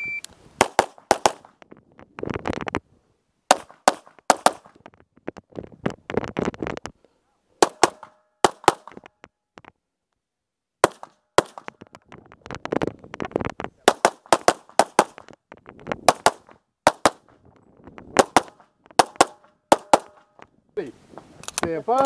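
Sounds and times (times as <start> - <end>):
pistol shots in quick pairs: 0.6 - 1.5, 3.5 - 4.7, 7.6 - 9.0, 10.8 - 11.7, 13.8 - 15.2, 16.1 - 17.2, 18.2 - 20.3.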